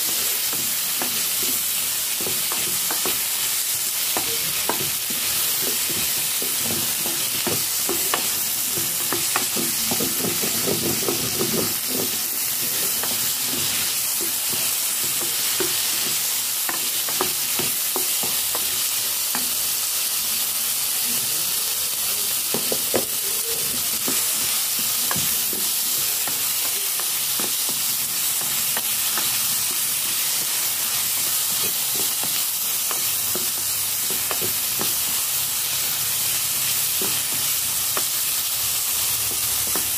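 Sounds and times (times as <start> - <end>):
food sizzling in a pot: 0.0 - 39.9
wooden spatula scraping a pot: 0.1 - 17.8.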